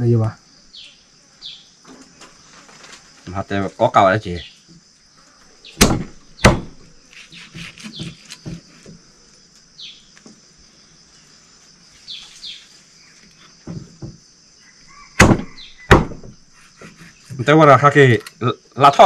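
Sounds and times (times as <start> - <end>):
high insect drone: 0.0 - 19.0
bird chirps: 0.7 - 1.8, 7.1 - 8.5, 9.8 - 10.1, 12.0 - 13.2, 14.6 - 15.9
knife chopping meat on wood: 5.8 - 6.8, 7.4 - 8.7, 15.2 - 17.1.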